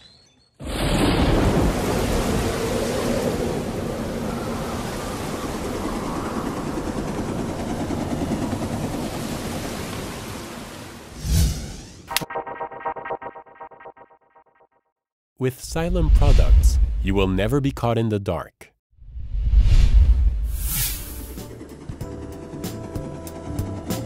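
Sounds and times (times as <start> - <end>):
whoosh with low boom: 11.2 - 12.1, 15.8 - 17.2, 19.0 - 21.4.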